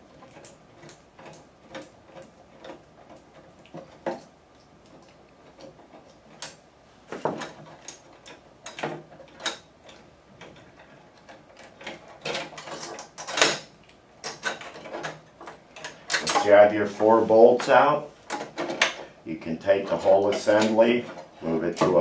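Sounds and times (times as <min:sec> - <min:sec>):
hand driver unscrewing bolts: 0:07.2 - 0:19.1.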